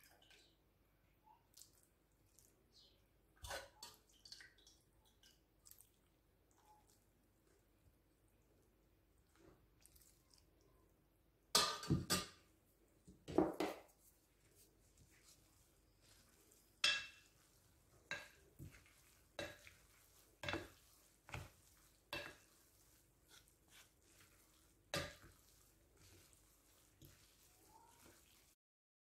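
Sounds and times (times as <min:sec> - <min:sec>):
wooden spoons clinking on glass: 0:16.8 - 0:17.4.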